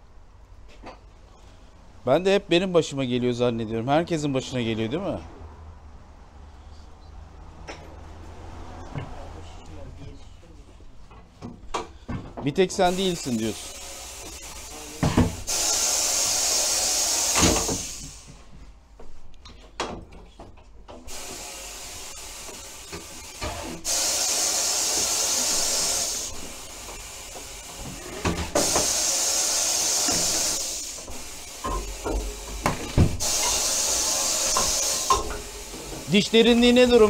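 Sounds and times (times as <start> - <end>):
compressed air hissing: 12.8 - 18.4, 21.1 - 27.8, 28.4 - 37.0.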